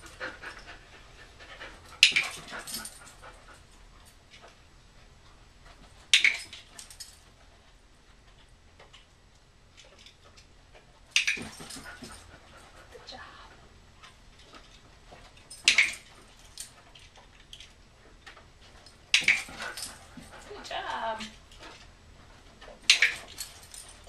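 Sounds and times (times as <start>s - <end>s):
dog panting and whimpering: 0.0s - 4.6s, 11.2s - 17.4s, 18.0s - 24.0s.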